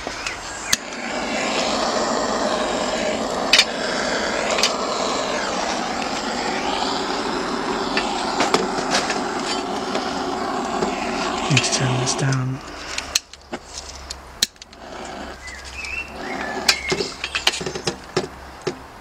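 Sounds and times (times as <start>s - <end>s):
charcoal lighter jet rushing: 0.0s - 13.8s.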